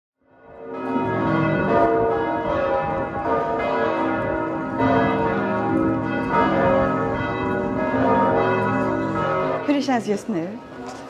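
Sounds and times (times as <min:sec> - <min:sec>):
church bells ringing: 0:00.2 - 0:11.0.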